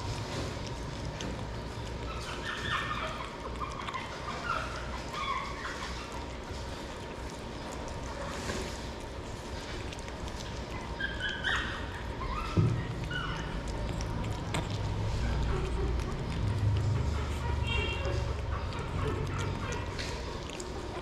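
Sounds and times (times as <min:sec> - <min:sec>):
puppy chewing wetly: 0:00.0 - 0:21.0
steady low hum: 0:00.0 - 0:21.0.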